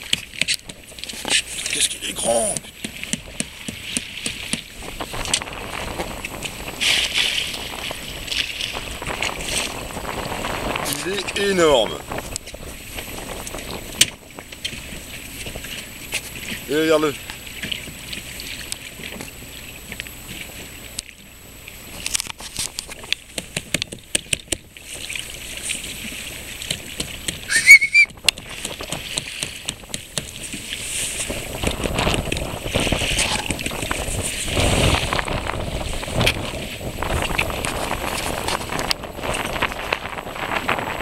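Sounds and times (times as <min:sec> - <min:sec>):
water splashing against boat hull: 0:00.0 - 0:41.0
short rising whistle: 0:27.5 - 0:28.1.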